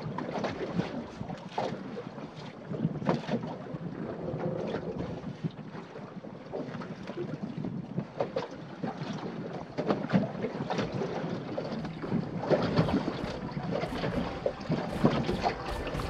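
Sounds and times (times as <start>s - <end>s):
water splashing against boat hull: 0.0s - 16.0s
wind on microphone: 10.1s - 16.0s
knocks and slaps on hull: 11.8s - 16.0s.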